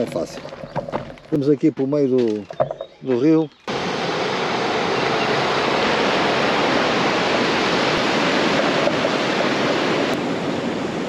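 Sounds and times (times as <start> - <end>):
river water rushing over a weir: 3.7 - 11.0.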